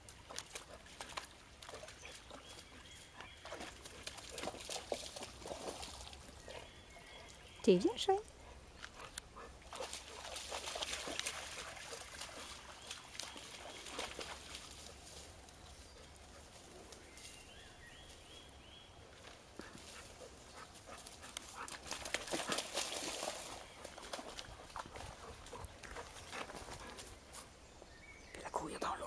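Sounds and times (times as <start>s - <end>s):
dog splashing through water: 0.0s - 7.6s, 9.0s - 15.4s, 19.1s - 27.4s
rustling in dry leaves: 13.0s - 18.3s.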